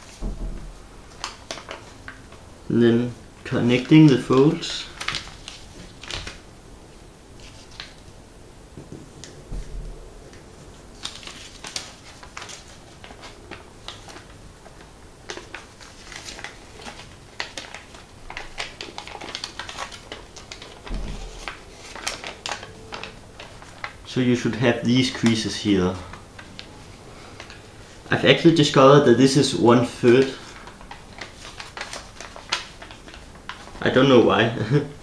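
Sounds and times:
paper crackling and rustling: 1.0 - 6.5, 7.4 - 8.1, 9.1 - 34.8.

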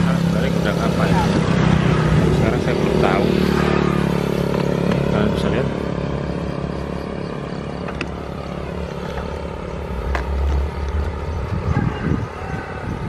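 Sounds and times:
wind buffeting microphone: 8.0 - 13.0.

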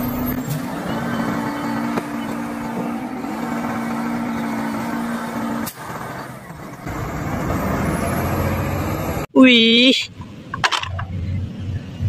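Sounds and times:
garbage truck humming: 0.0 - 9.3.

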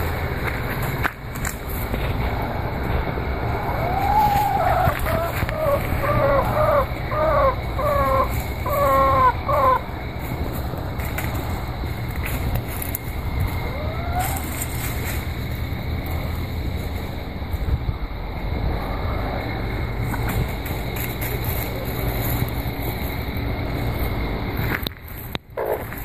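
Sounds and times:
steady low rumble: 0.0 - 25.3
hen calling: 3.5 - 9.9.

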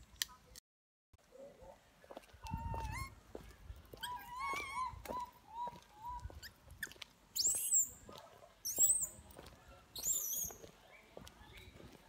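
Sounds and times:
baby monkey whimpering: 2.5 - 3.2, 4.0 - 6.6
baby monkey screaming: 4.0 - 6.6, 7.4 - 8.0.

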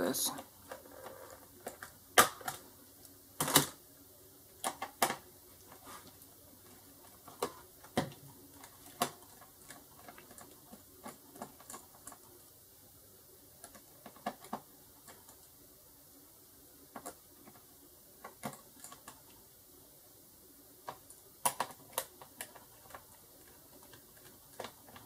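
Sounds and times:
plastic clicks and snaps: 20.9 - 23.0.

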